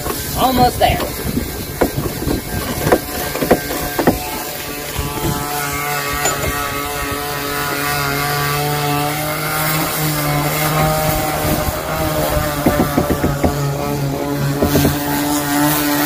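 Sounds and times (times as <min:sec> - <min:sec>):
electric power sander humming: 0:00.0 - 0:16.0.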